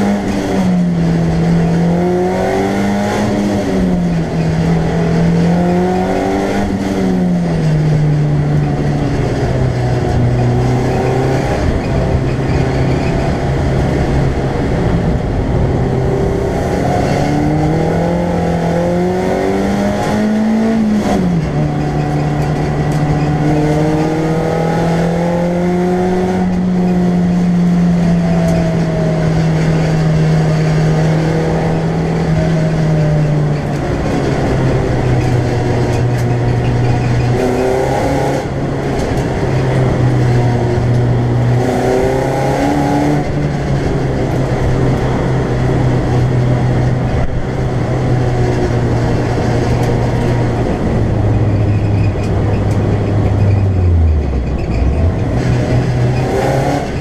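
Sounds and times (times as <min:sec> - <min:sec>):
race car engine revving: 0:00.0 - 0:57.0
road and tyre noise: 0:00.0 - 0:57.0.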